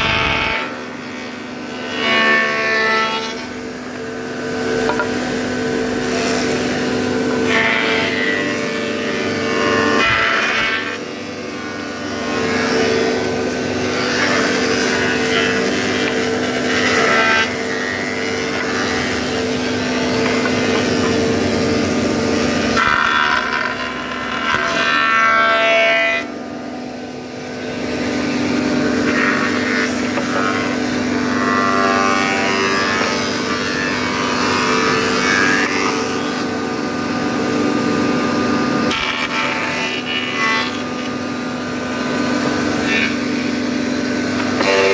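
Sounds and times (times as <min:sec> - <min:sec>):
machine hum: 0:00.0 - 0:26.1
noisy machine whirr: 0:00.0 - 0:44.9.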